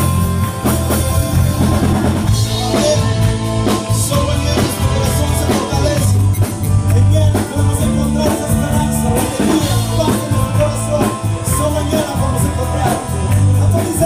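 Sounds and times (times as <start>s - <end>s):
drum kit beat: 0.0s - 14.0s
electric bass: 0.0s - 14.0s
keyboard: 0.0s - 14.0s
man singing: 1.2s - 14.0s.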